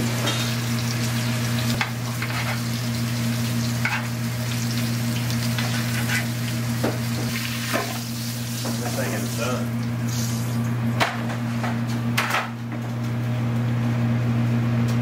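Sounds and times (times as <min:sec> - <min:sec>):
steak sizzling in a pan: 0:00.0 - 0:10.5
utensil scraping a pan: 0:02.2 - 0:02.6, 0:05.6 - 0:06.4.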